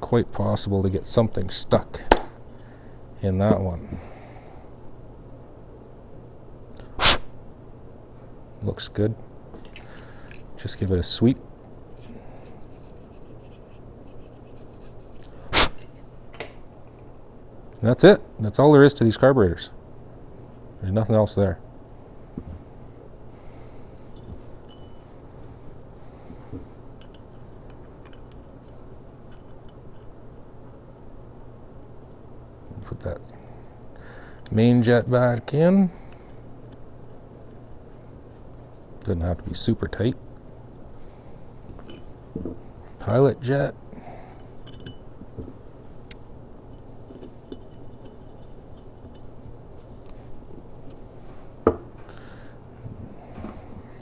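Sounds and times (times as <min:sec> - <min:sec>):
low steady hum: 0:00.0 - 0:54.0.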